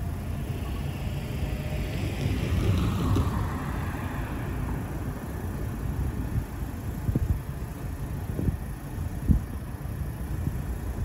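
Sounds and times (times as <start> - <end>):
low street rumble: 0.0 - 11.0
car driving past: 0.3 - 5.6.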